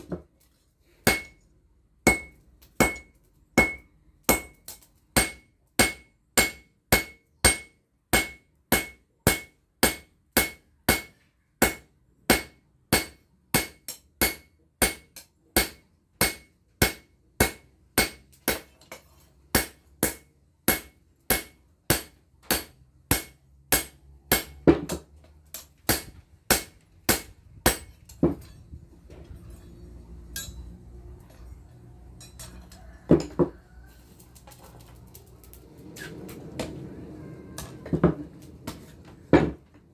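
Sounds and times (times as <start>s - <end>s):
hammer striking metal on anvil: 1.0s - 1.4s, 2.0s - 18.7s, 19.5s - 28.6s, 30.3s - 30.7s.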